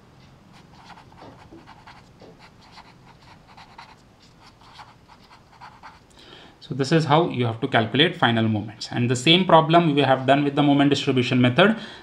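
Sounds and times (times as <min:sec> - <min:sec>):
pen scratching on paper: 0:00.5 - 0:06.0.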